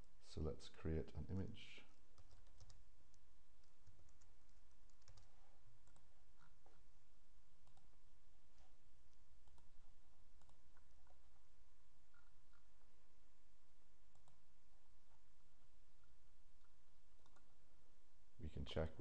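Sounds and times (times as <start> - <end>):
faint background hum: 0.0 - 19.0
computer mouse and keyboard clicks: 1.9 - 6.8, 7.6 - 7.9, 9.4 - 9.8, 10.4 - 11.2, 14.1 - 14.4, 16.0 - 17.6.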